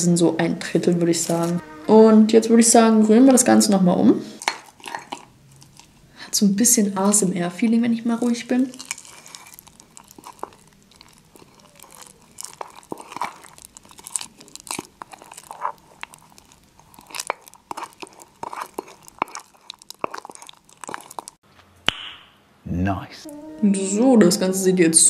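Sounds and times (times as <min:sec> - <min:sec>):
spoon scraping batter in mug: 0:08.3 - 0:21.3.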